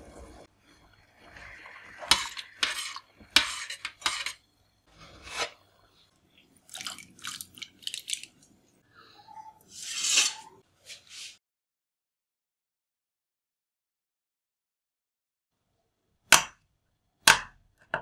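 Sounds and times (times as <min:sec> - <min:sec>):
metal spoon scraping saucepan: 0:01.3 - 0:05.6, 0:09.7 - 0:10.6.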